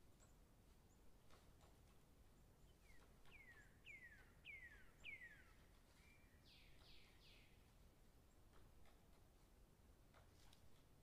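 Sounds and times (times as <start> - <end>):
bird singing faintly: 2.6 - 7.6.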